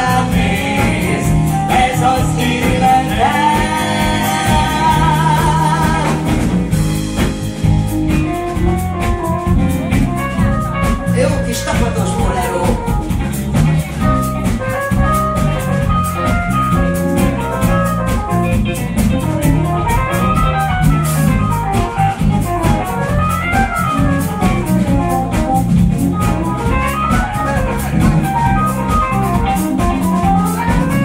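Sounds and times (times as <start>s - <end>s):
bass guitar: 0.0s - 31.0s
drum kit steady beat: 0.0s - 31.0s
electric guitar lines: 12.8s - 31.0s.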